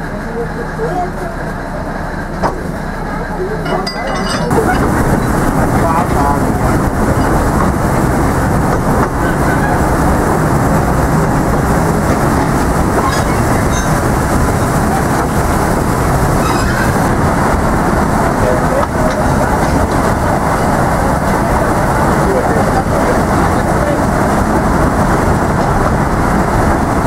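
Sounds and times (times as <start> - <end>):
train wheels rumbling on rails: 0.0 - 27.0.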